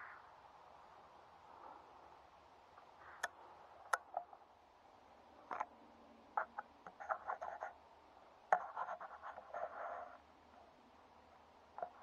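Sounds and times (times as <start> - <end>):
faint rustling and crackling: 5.4 - 7.8, 8.5 - 12.0.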